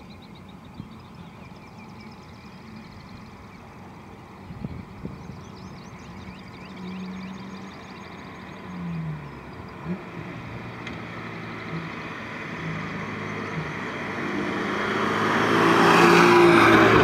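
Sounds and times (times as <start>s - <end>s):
car exhaust passing: 6.9s - 17.0s.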